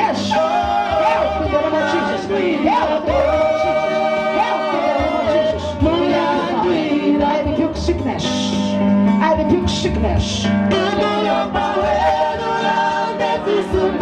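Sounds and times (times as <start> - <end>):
steady keyboard accompaniment: 0.0 - 14.0.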